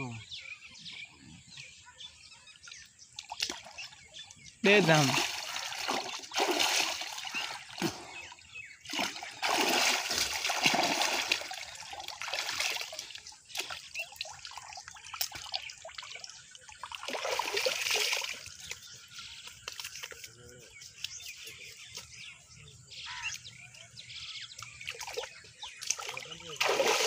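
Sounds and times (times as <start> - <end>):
water splashing and sloshing: 3.0 - 20.4, 24.5 - 27.0.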